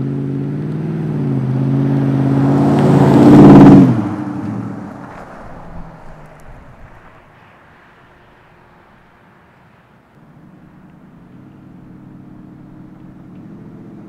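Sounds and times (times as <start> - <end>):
truck engine accelerating past: 0.0 - 7.3.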